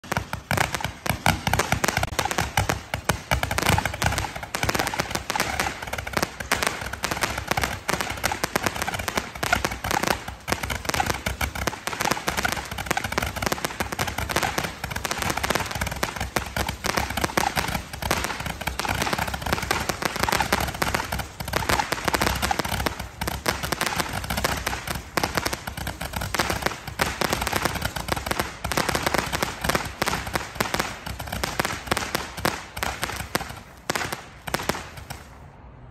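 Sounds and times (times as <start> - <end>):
firework popping and crackling: 0.0 - 35.5.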